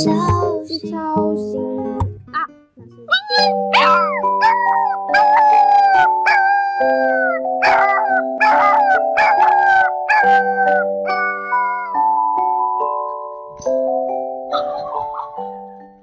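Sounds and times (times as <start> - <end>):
background music of held chords: 0.0 - 16.0
short howl-like cry: 3.8 - 11.9.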